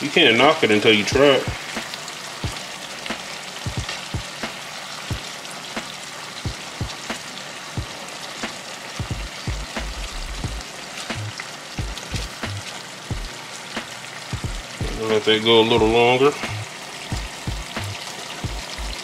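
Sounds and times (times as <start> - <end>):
meat sizzling in butter: 0.0 - 19.0.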